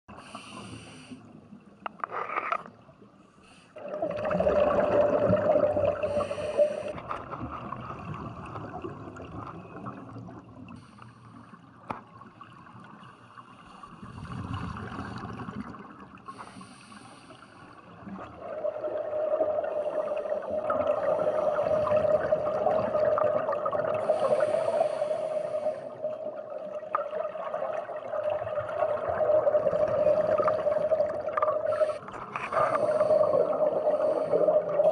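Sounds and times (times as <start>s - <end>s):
regulator bubbles gurgling: 3.8s - 10.9s, 13.9s - 16.5s, 17.8s - 34.9s.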